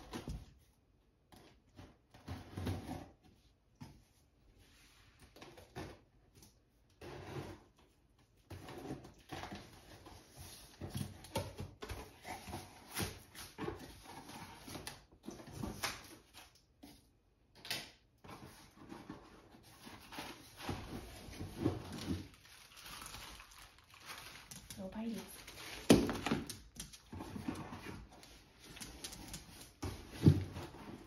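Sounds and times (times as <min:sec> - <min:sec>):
cardboard rustling and scraping: 0:06.9 - 0:17.0, 0:18.2 - 0:31.0.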